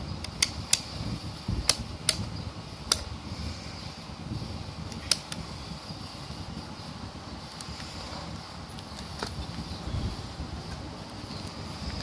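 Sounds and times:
rotary switch clicking: 1.6s - 3.1s.

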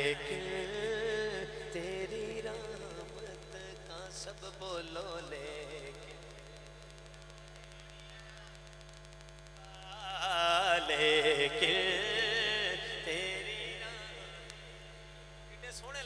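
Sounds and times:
man singing into a microphone: 0.0s - 6.6s, 9.6s - 15.0s
faint hum: 0.0s - 16.0s.

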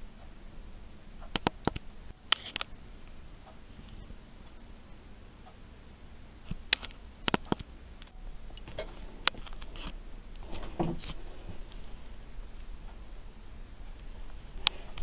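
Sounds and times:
short rustle: 8.6s - 13.1s.

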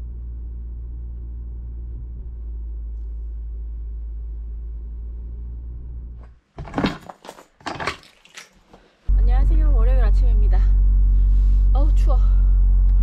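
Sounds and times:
road and engine noise in car: 0.0s - 6.2s, 9.2s - 13.0s.

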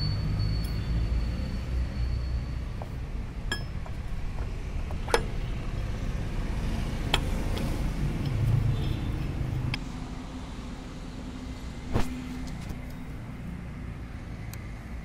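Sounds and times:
metal bolts clinking: 3.4s - 5.5s.

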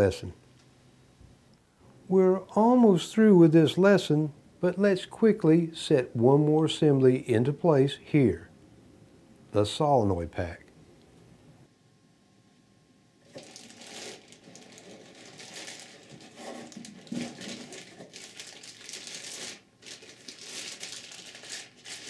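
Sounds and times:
plastic bag crinkling: 13.2s - 22.0s.

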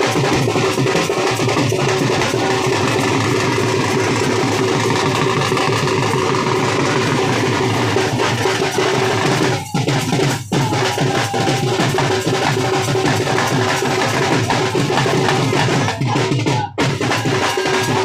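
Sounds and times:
dhol drums beating fast rhythm: 0.0s - 18.0s.

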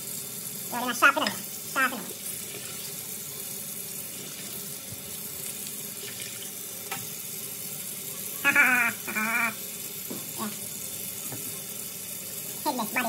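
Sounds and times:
tap water splashing in sink: 1.0s - 3.2s, 4.0s - 7.9s, 8.5s - 13.0s
person's voice: 12.6s - 13.0s.

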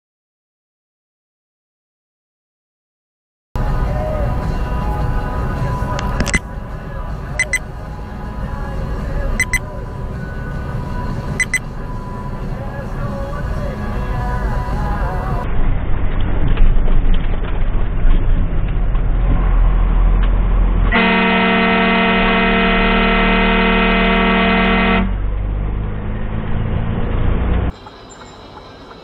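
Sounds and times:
road noise: 3.6s - 29.0s
truck engine rumble: 3.6s - 29.0s
vehicle horn blast: 20.9s - 25.2s.

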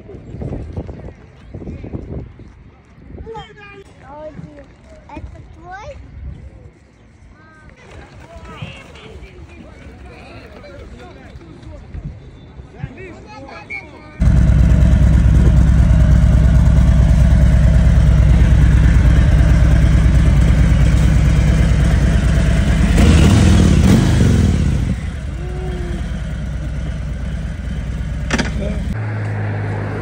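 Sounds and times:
motorcycle engine revving and idling: 14.2s - 29.0s.

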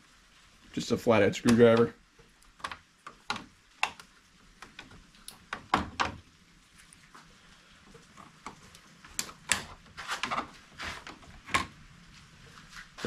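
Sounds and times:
plastic clips clicking and snapping: 8.5s - 10.4s.

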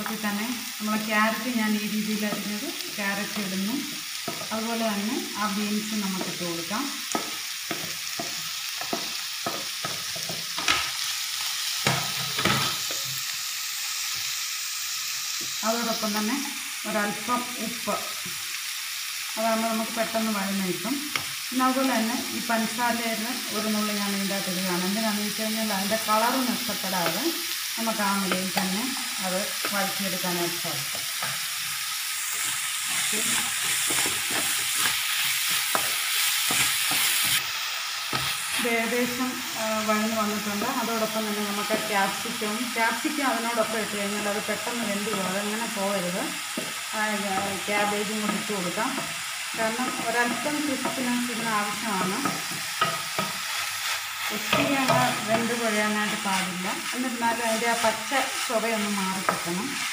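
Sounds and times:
vegetables sizzling in oil: 0.0s - 59.9s
spatula knocking and scraping pan: 7.1s - 10.9s, 32.4s - 37.4s, 49.7s - 55.7s.

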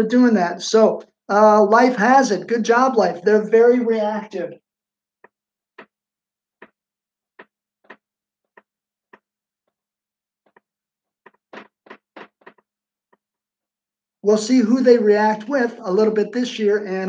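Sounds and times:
marker writing on a whiteboard: 11.3s - 13.3s.

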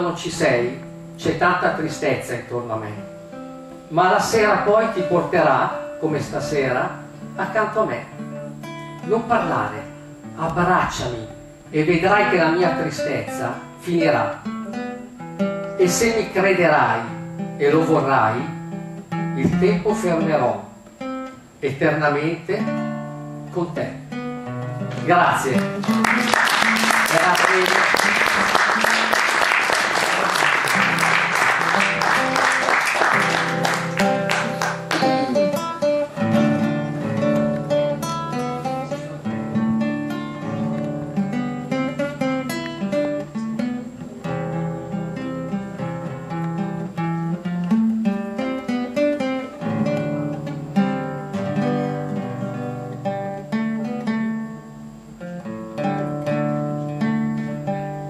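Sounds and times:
acoustic guitar plucked: 0.0s - 58.0s
audience applause: 25.6s - 35.5s.

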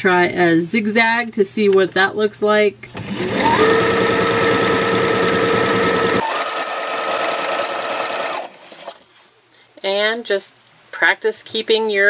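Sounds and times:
sewing machine motor whine: 3.0s - 9.0s
sewing machine needle clatter: 3.1s - 9.0s.

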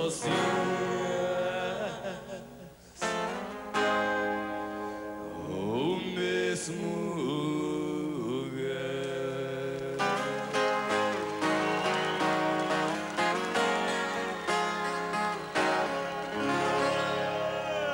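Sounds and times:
young man singing: 0.0s - 3.2s, 5.3s - 10.4s, 16.4s - 17.9s
acoustic guitar: 0.0s - 17.9s.

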